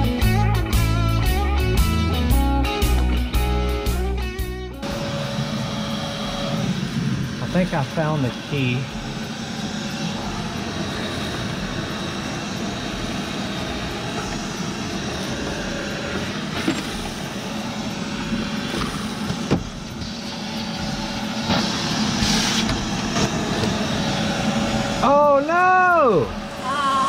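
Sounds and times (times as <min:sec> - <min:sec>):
shop vacuum running: 0:00.0 - 0:27.0.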